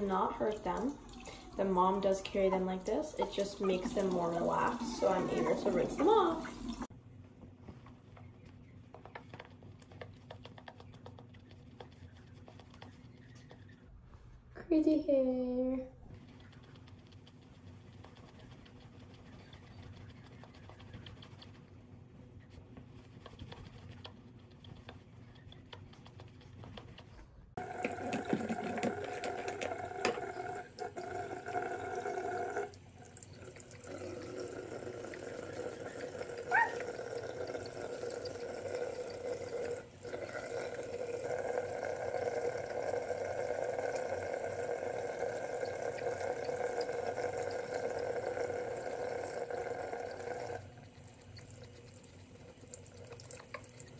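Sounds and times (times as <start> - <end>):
tap water splashing into basin: 27.6 - 34.0.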